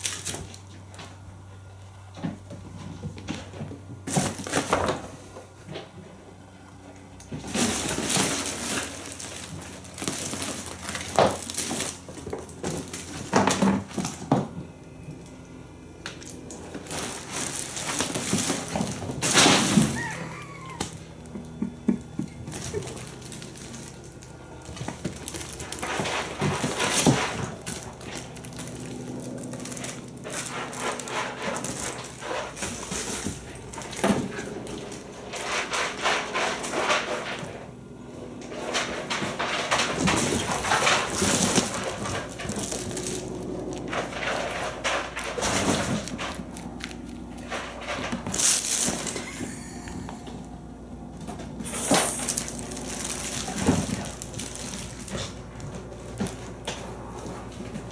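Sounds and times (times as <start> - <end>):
kittens scrabbling and rustling fabric: 16.3 - 37.5, 38.5 - 57.9.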